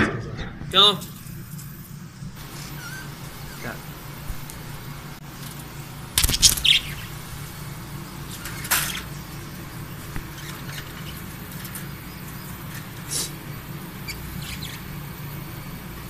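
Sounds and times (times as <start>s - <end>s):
low steady hum: 0.0s - 16.0s
bird wings flapping and rustling: 4.2s - 13.1s
budgerigar chirping: 6.4s - 7.2s, 14.0s - 14.9s.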